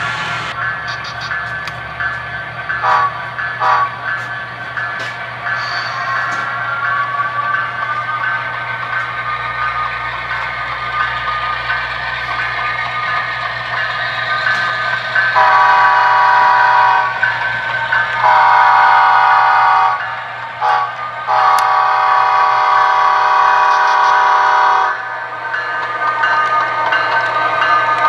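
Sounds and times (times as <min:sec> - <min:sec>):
locomotive running sound: 0:00.0 - 0:28.0
model locomotive horn blasts: 0:02.8 - 0:04.0, 0:15.4 - 0:17.2, 0:18.2 - 0:20.0, 0:20.6 - 0:25.0.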